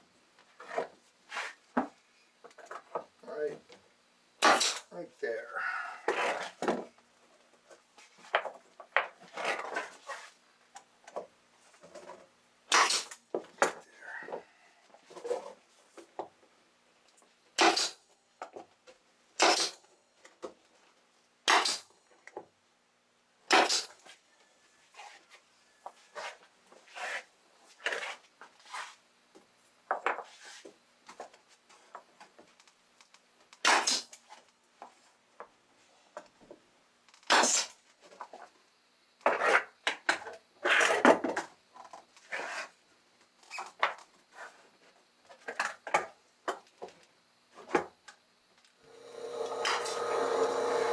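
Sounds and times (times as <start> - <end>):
nail gun firing: 4.4 - 4.8, 17.6 - 18.0, 21.5 - 21.8, 49.6 - 50.9.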